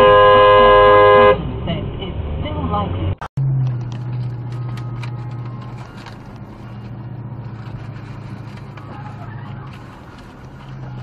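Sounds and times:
car cabin drone: 0:00.0 - 0:11.0.

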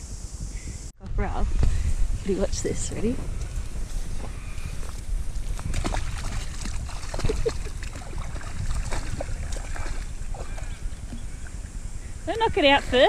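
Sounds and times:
wind rumbling on microphone: 0:00.0 - 0:13.0
dog splashing through water: 0:05.5 - 0:11.2.

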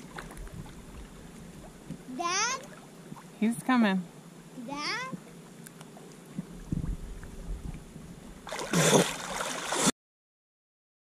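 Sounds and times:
water sloshing and gurgling: 0:00.0 - 0:04.5, 0:05.1 - 0:10.0
heavy splashing: 0:08.4 - 0:09.9.

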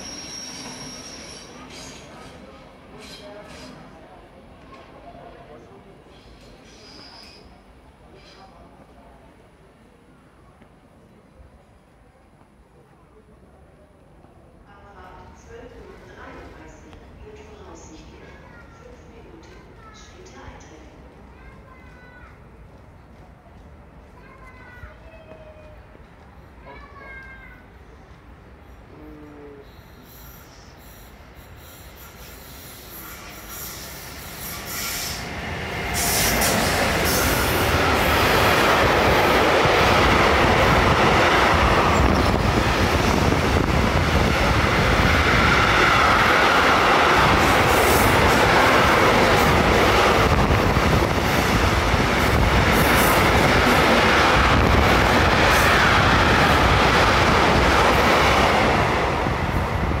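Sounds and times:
freight train rumbling past: 0:00.0 - 0:09.3, 0:29.8 - 1:00.0.

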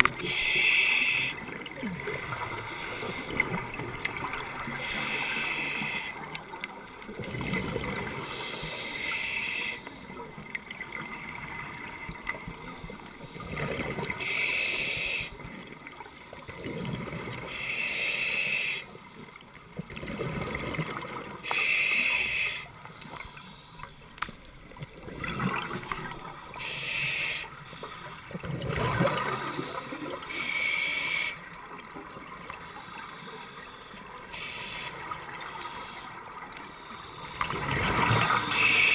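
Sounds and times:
exhaled bubbles gurgling: 0:00.0 - 0:08.4, 0:10.4 - 0:15.7, 0:19.8 - 0:21.4, 0:24.7 - 0:27.2, 0:28.2 - 0:32.4, 0:37.4 - 0:38.9
regulator breathing hiss: 0:00.2 - 0:01.4, 0:02.4 - 0:03.4, 0:04.8 - 0:06.2, 0:08.2 - 0:10.0, 0:14.2 - 0:15.4, 0:17.5 - 0:18.9, 0:21.4 - 0:24.0, 0:26.6 - 0:28.2, 0:29.3 - 0:31.4, 0:32.6 - 0:37.4, 0:38.4 - 0:38.9.

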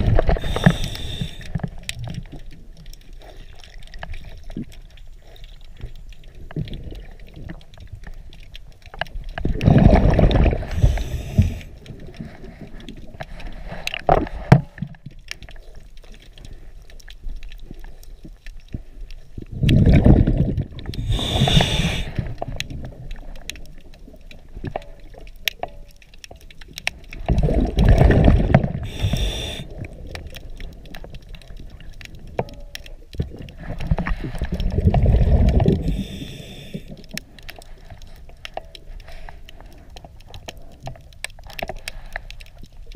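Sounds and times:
bubbling exhaled air underwater: 0:00.0 - 0:02.8, 0:09.1 - 0:15.6, 0:19.4 - 0:25.2, 0:26.9 - 0:37.8
regulator hiss: 0:00.4 - 0:01.5, 0:10.7 - 0:11.8, 0:21.0 - 0:22.2, 0:28.9 - 0:29.7, 0:35.8 - 0:36.9.

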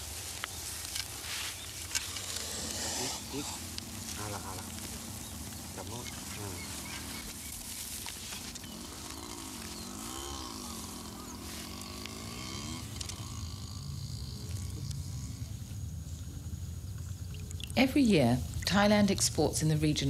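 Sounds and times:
straw and sack rustling: 0:00.0 - 0:14.4.

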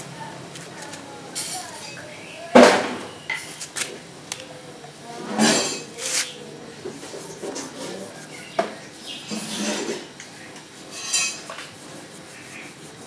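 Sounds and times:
cloth rubbing metal pipe: 0:10.8 - 0:13.0.

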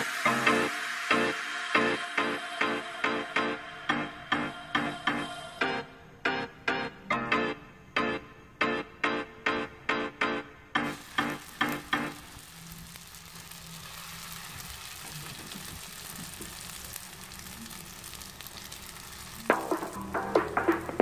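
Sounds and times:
background music with a beat: 0:00.0 - 0:12.2, 0:19.4 - 0:21.0
food sizzling in oil: 0:10.8 - 0:21.0.

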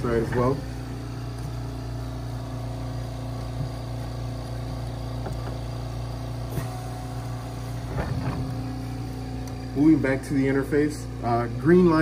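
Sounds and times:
oxygen concentrator compressor hum: 0:00.0 - 0:12.0.

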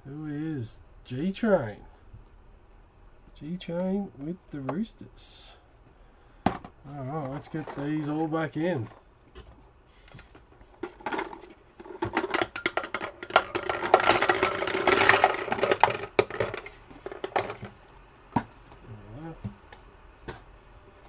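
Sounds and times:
trading cards rustling: 0:07.0 - 0:08.9.

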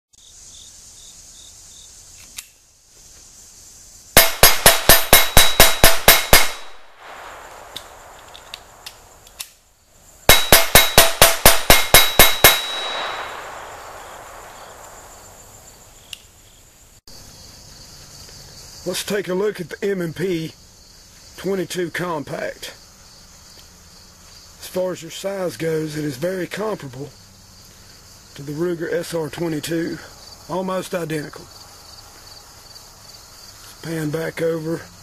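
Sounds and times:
insects chirring: 0:00.1 - 0:35.0
steel plate target ringing: 0:04.2 - 0:08.1, 0:10.3 - 0:15.0
rapid pistol fire: 0:04.2 - 0:09.2, 0:10.3 - 0:15.6.

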